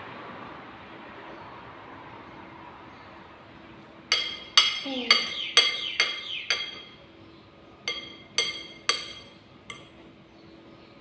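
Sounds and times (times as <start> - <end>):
metal spoon clinking on ceramic bowl: 4.1 - 7.0, 7.9 - 10.0.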